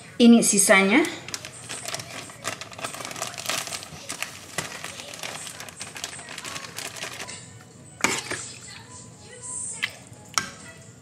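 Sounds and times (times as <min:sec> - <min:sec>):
packet crinkling: 0:01.0 - 0:07.4.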